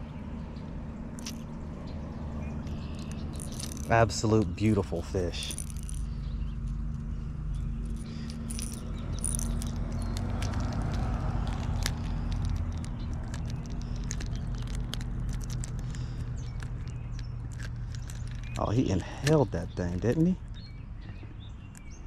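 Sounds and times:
steady low hum: 0:00.0 - 0:21.4
fishing lure hooks jingling: 0:01.2 - 0:01.5, 0:02.6 - 0:20.6.

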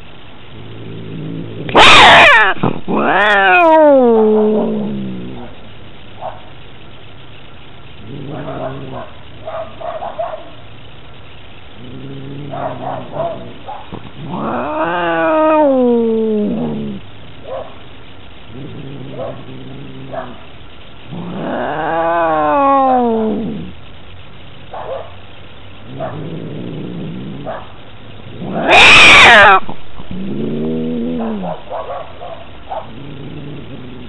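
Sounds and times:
cat growling low: 0:00.5 - 0:05.7, 0:08.0 - 0:09.4, 0:11.7 - 0:17.1, 0:18.4 - 0:23.8, 0:25.8 - 0:31.8, 0:32.6 - 0:34.0
cat yowling: 0:01.6 - 0:05.6, 0:12.3 - 0:17.0, 0:21.1 - 0:23.7, 0:28.4 - 0:34.0.

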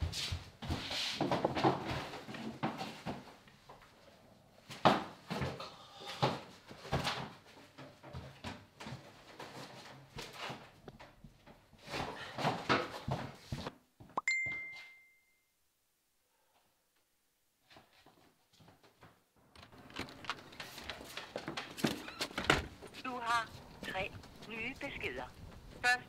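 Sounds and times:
bright ding: 0:14.2 - 0:15.5
feet shuffling: 0:17.6 - 0:26.0.

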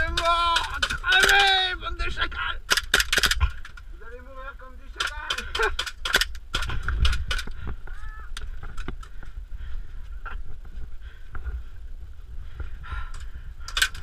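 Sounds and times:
sharp clicks and knocks: 0:00.0 - 0:01.5, 0:02.6 - 0:03.9, 0:04.9 - 0:09.2
wind rumble on microphone: 0:06.4 - 0:14.0.

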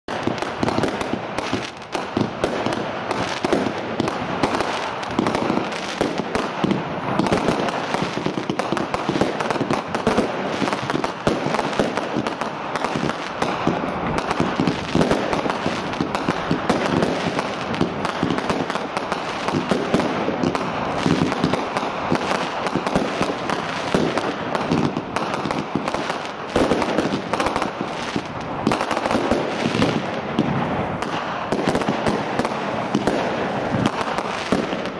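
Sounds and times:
fireworks bangs and crackles: 0:00.0 - 0:34.9.

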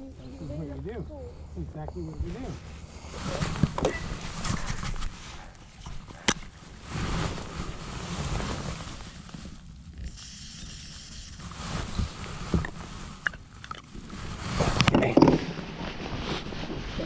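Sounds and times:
aerosol spray can hiss: 0:10.1 - 0:11.4
wind rumble on microphone: 0:11.4 - 0:17.0.

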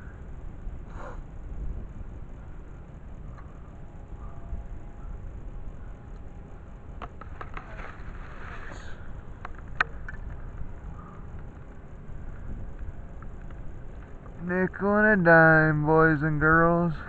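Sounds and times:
wind rumbling on microphone: 0:00.0 - 0:17.0
microphone handling rustling: 0:07.0 - 0:14.4.

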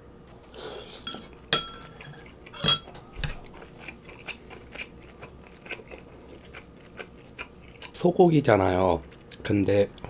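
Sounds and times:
utensils clinking on ceramic bowl: 0:01.1 - 0:03.0.

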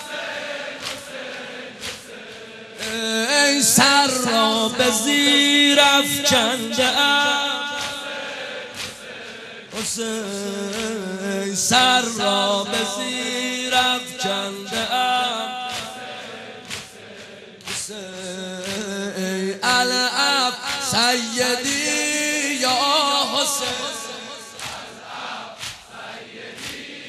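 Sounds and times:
man chanting a lament: 0:02.8 - 0:08.6, 0:09.7 - 0:16.4, 0:17.8 - 0:25.0.

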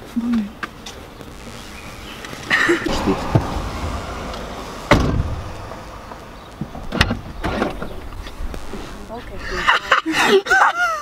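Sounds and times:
car door slamming: 0:02.9 - 0:07.9
sharp knock: 0:04.9 - 0:05.5.

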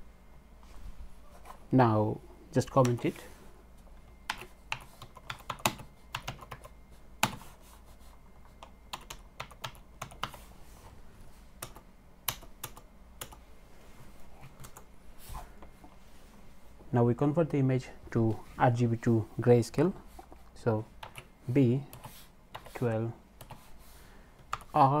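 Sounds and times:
computer keyboard typing: 0:04.2 - 0:07.5, 0:08.5 - 0:10.4, 0:11.6 - 0:13.4, 0:21.0 - 0:21.3, 0:21.9 - 0:23.6, 0:24.4 - 0:24.8.

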